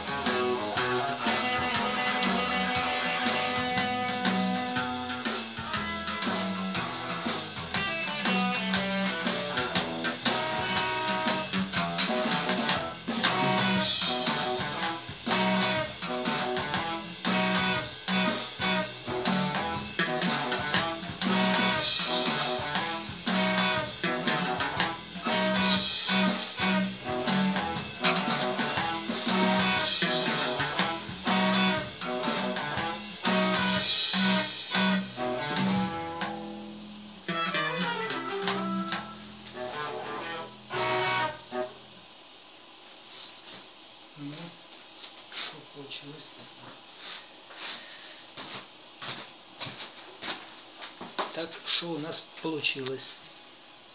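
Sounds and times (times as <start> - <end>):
fingerpicked electric guitar: 0.0 - 41.9.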